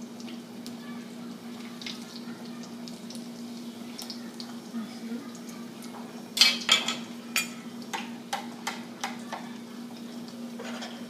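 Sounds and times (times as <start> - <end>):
spatula knocking on frying pan: 7.9 - 9.4.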